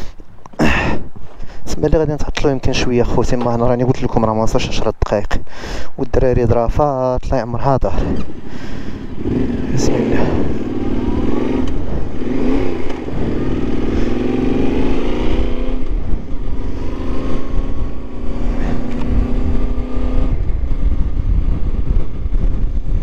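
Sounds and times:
wind rumbling on microphone: 0:00.0 - 0:23.0
motorcycle engine accelerating: 0:08.0 - 0:23.0.

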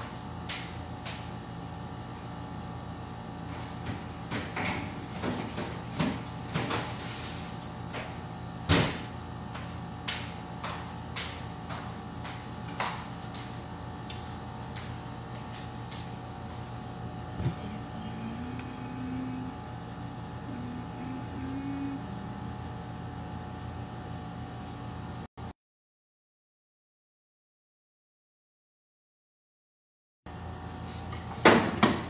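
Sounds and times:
background hum: 0:00.0 - 0:25.3.

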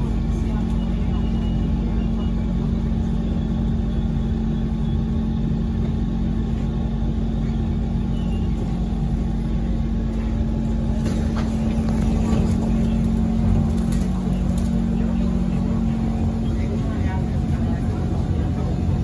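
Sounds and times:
constant low hum: 0:00.0 - 0:19.0
train cabin rumble: 0:00.0 - 0:19.0.

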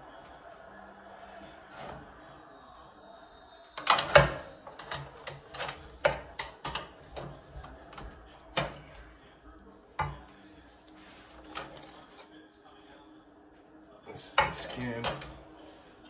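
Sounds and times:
metal tongs clacking on tray: 0:03.8 - 0:07.3.

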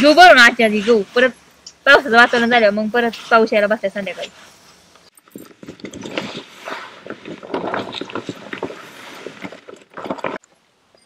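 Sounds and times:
plastic tarpaulin rustling: 0:01.9 - 0:10.4.

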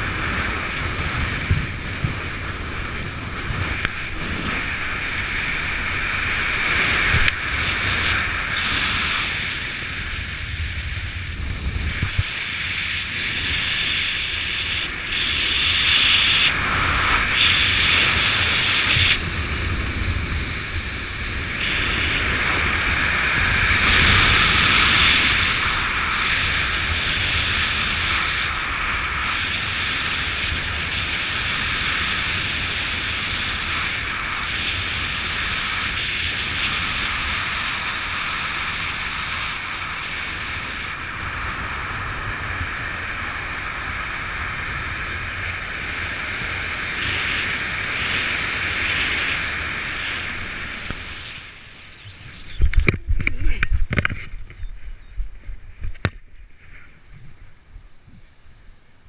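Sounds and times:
wind rushing over microphone: 0:00.0 - 0:59.0
thumps and rustles on dry grass: 0:52.5 - 0:57.4.

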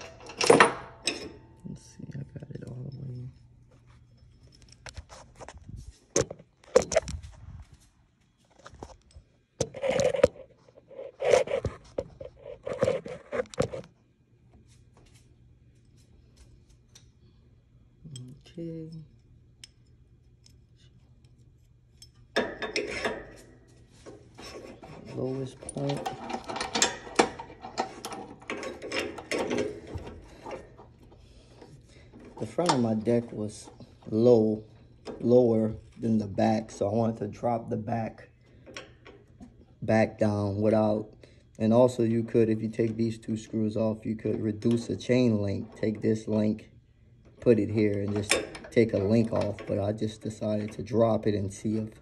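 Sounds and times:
scrapes and knocks against mower: 0:22.4 - 0:34.0.

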